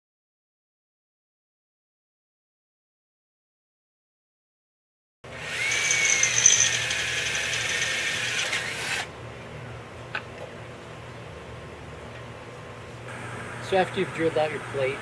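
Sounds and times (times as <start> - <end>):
drill boring through metal: 5.3 - 9.1.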